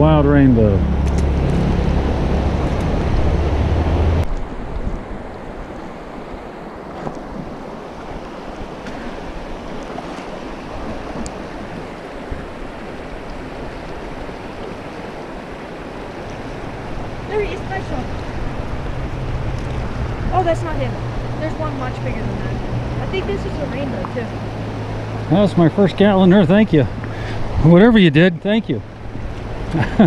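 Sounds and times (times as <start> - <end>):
low microphone rumble: 0.0 - 5.2, 16.3 - 30.0
river water rushing over rocks: 0.8 - 27.8, 28.8 - 29.8.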